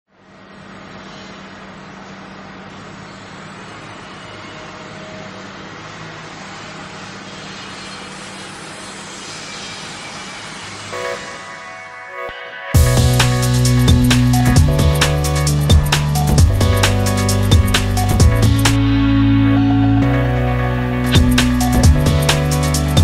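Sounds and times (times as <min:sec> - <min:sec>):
rushing noise: 0:00.2 - 0:23.0
engine-like rumble: 0:12.8 - 0:23.0.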